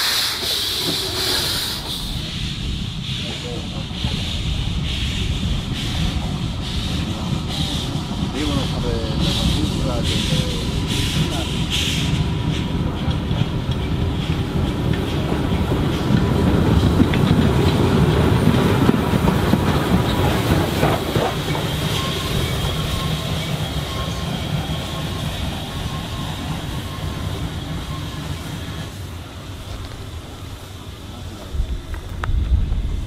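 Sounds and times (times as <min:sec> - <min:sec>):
train wheels clattering on rails: 0:00.0 - 0:33.0.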